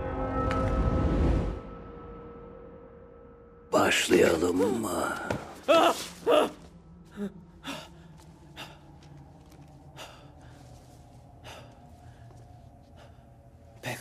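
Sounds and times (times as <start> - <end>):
faint steady drone: 6.3 - 14.0.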